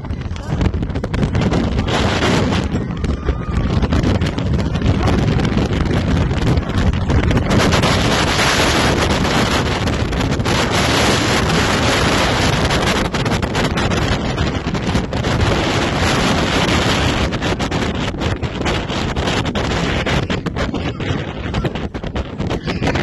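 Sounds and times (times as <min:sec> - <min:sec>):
strong wind gusting on microphone: 0:00.0 - 0:23.0.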